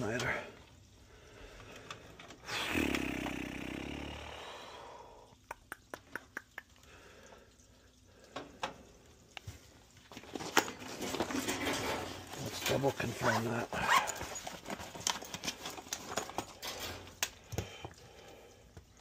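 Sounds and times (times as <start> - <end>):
scraping rustle of wiring: 10.0 - 17.5.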